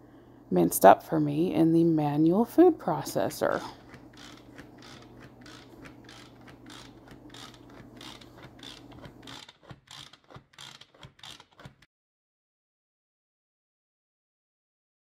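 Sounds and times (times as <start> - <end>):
food chopper ratcheting: 3.8 - 11.9.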